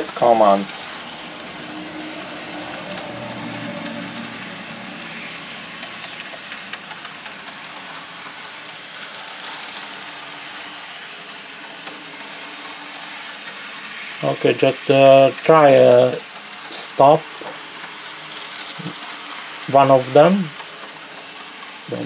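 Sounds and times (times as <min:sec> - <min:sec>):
model train motors humming: 0:00.0 - 0:22.0
wheels clicking on rails: 0:00.0 - 0:22.0.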